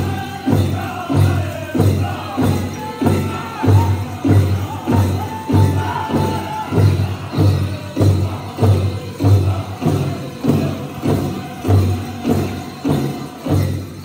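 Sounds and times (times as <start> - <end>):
bells jingling: 0.0 - 14.0
group singing: 0.0 - 14.0.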